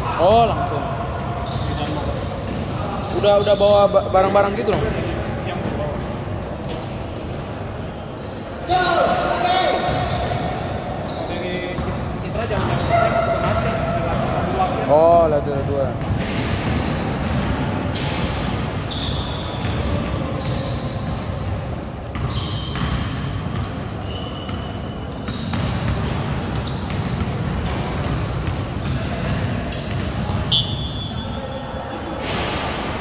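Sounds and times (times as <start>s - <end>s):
sneaker squeaks: 0.0s - 33.0s
basketball bouncing on court: 4.5s - 7.6s, 11.7s - 30.9s.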